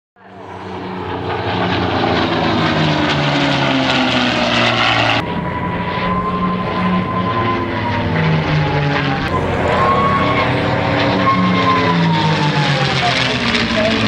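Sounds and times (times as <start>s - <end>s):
propeller planes flying past: 0.2s - 14.0s
thin steady whine: 5.2s - 14.0s.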